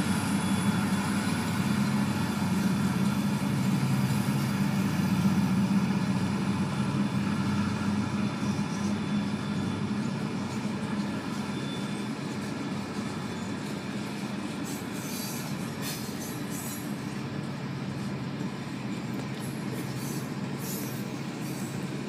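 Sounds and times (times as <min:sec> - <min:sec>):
freight train rumbling past: 0:00.0 - 0:22.0
high wheel screeches: 0:14.6 - 0:17.0, 0:19.7 - 0:21.8.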